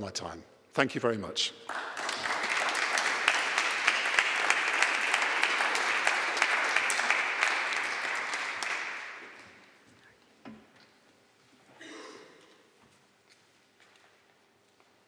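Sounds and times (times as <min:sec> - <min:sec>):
audience applauding: 0:01.7 - 0:09.7.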